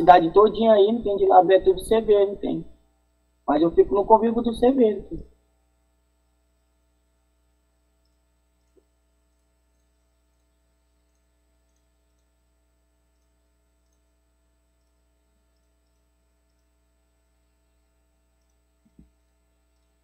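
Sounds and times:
low electrical hum: 0:00.0 - 0:20.0
faint ticks: 0:07.9 - 0:12.4, 0:13.0 - 0:16.9, 0:17.5 - 0:20.0.

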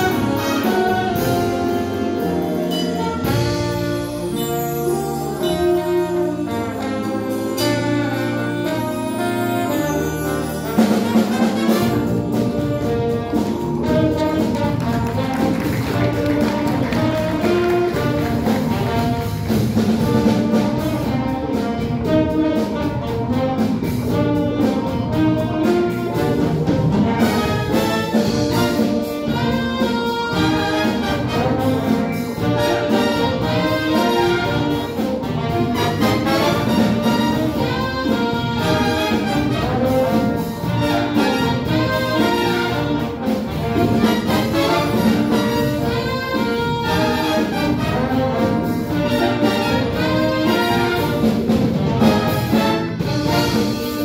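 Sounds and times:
jazz big band playing: 0:00.0 - 0:54.0
steady drum beat: 0:00.0 - 0:54.0.

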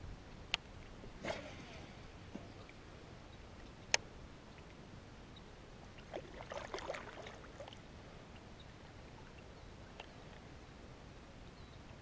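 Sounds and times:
water splashing and dripping: 0:06.0 - 0:07.8.

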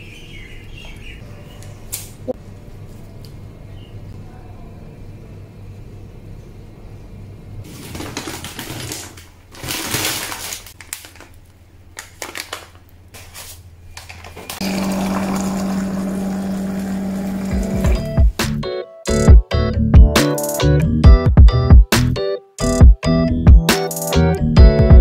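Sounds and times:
packaging rustling: 0:07.7 - 0:14.6
water filling a glass: 0:14.6 - 0:17.9
water dispenser humming: 0:14.6 - 0:18.3.

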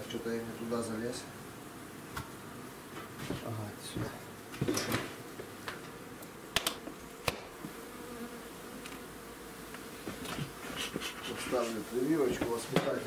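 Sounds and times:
honeybees buzzing: 0:00.0 - 0:13.0
wooden hive frame clicks: 0:04.6 - 0:07.6.

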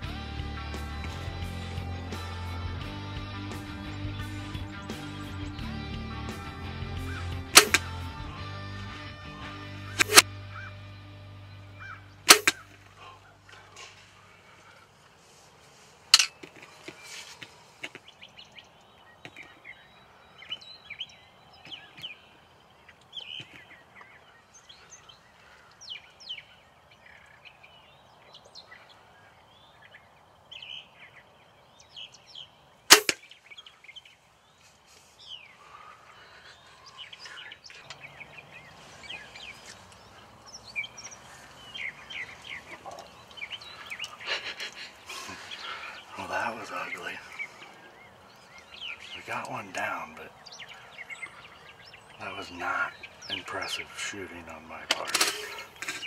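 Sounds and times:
songbirds chirping: 0:00.0 - 0:56.0
compound bow shot snap: 0:07.5 - 0:08.1, 0:09.9 - 0:10.3, 0:12.3 - 0:12.7, 0:32.9 - 0:33.2
rustling: 0:11.8 - 0:18.1, 0:32.9 - 0:38.0.

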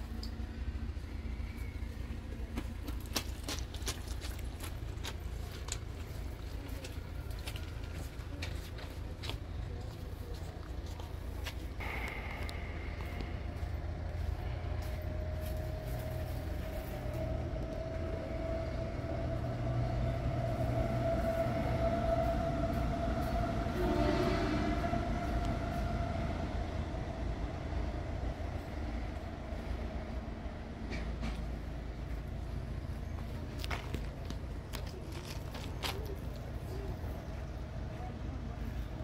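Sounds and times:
low rumble: 0:10.2 - 0:37.7
passing vehicle engine drone: 0:11.8 - 0:34.4.

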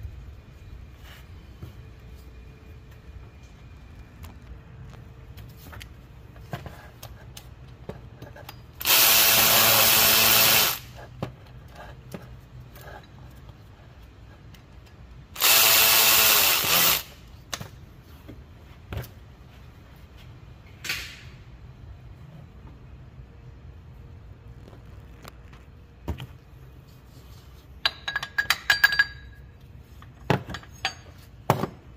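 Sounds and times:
power tool motor whine: 0:08.8 - 0:10.9, 0:15.4 - 0:17.1
tool and bolts clinking: 0:27.8 - 0:31.8.

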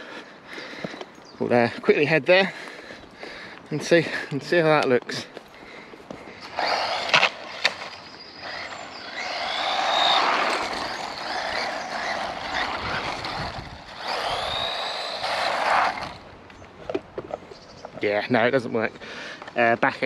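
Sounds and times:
electric motor whining: 0:06.4 - 0:16.3
tyres rumbling on asphalt: 0:08.4 - 0:17.4.

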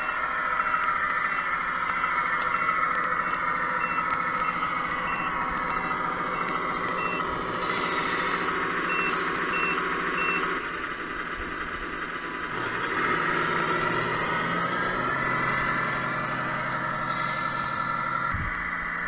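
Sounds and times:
reversing beeper: 0:00.0 - 0:10.8
diesel engine sound: 0:00.0 - 0:19.0.

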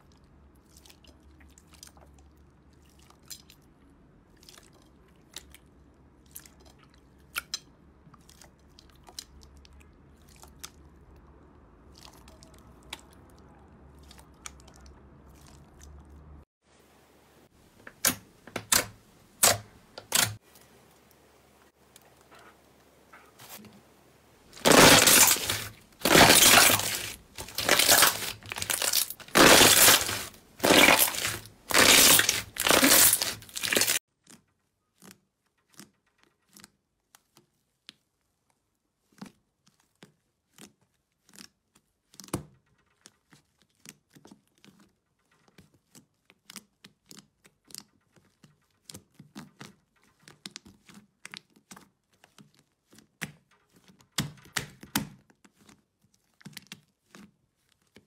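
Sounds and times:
slime squishing: 0:00.0 - 0:16.4, 0:24.5 - 0:58.0.

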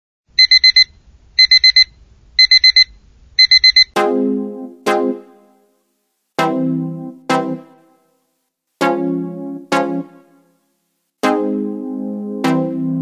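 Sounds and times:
alarm clock beeping: 0:00.4 - 0:04.0
keyboard notes: 0:04.0 - 0:05.7, 0:06.4 - 0:08.0, 0:08.8 - 0:10.5, 0:11.2 - 0:13.0
background music: 0:04.0 - 0:08.2, 0:08.8 - 0:13.0.

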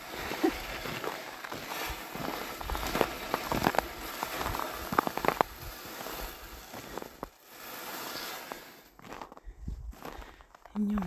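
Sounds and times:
footsteps crunching in snow: 0:00.0 - 0:11.0.

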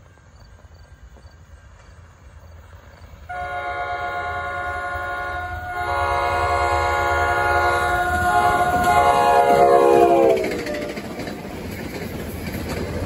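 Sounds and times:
low rumble of train: 0:00.0 - 0:13.0
train air horn chord: 0:03.3 - 0:11.1.

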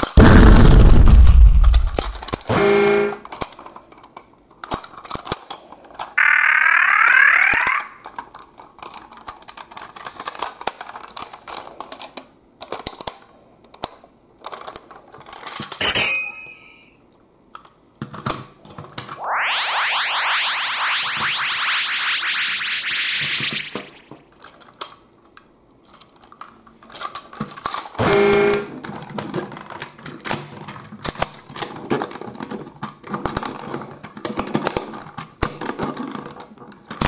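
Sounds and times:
plastic toy parts clicking: 0:03.3 - 0:06.1, 0:08.0 - 0:15.8, 0:25.8 - 0:28.0
loud wavering tone: 0:19.2 - 0:24.1
rising sweeping tone: 0:19.2 - 0:24.1.

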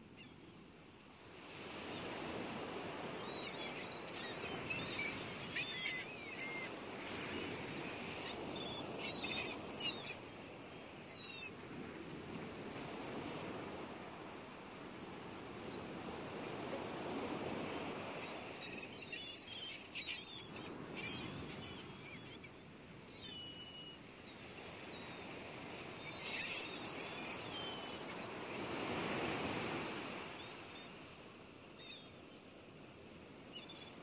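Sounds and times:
sea waves washing in: 0:01.2 - 0:05.5, 0:11.6 - 0:18.9, 0:24.4 - 0:31.3.

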